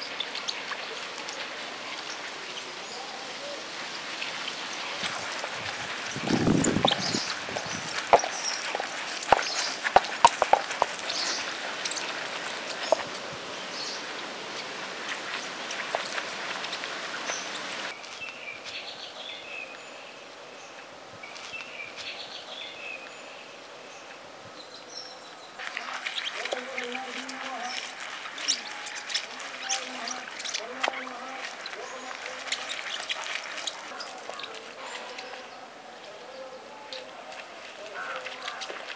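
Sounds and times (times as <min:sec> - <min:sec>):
birds chirping: 0:00.0 - 0:38.9.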